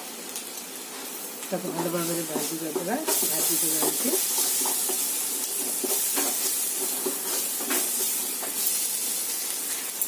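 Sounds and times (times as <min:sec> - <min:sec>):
paste sizzling in hot oil: 0:00.0 - 0:10.0
spatula scraping pan: 0:01.7 - 0:08.9.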